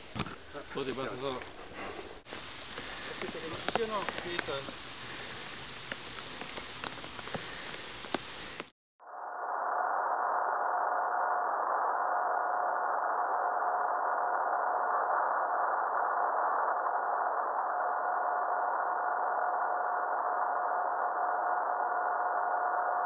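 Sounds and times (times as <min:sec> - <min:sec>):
steady hiss: 0:00.0 - 0:08.7
constant mid-pitched tone: 0:00.0 - 0:23.0.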